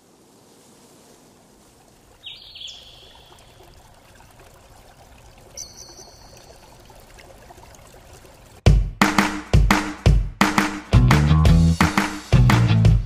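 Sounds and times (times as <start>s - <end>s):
flowing water rushing: 0.0s - 8.7s.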